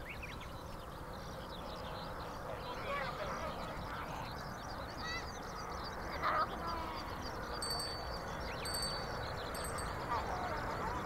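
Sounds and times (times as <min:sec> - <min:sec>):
bird chirps and twitters: 0:00.0 - 0:11.0.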